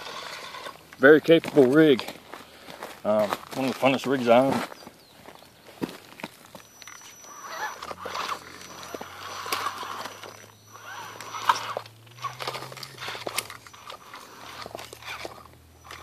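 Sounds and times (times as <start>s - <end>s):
low electric motor hum: 0.0s - 1.0s, 6.6s - 16.0s.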